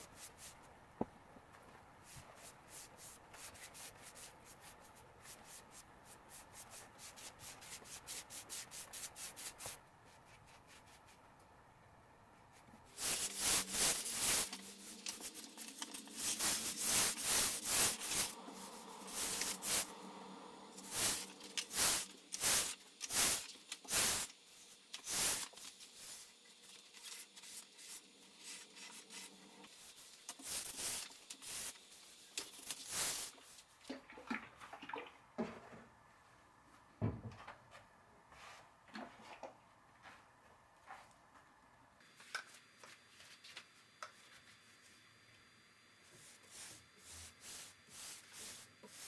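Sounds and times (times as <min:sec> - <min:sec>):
hand sanding wood: 0:12.6 - 0:20.0.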